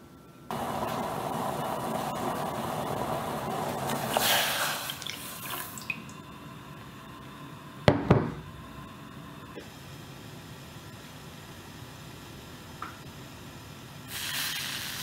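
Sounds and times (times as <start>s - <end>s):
tea simmering in a saucepan: 0.5s - 7.8s, 14.1s - 15.0s
milk pouring and splashing: 3.9s - 6.2s.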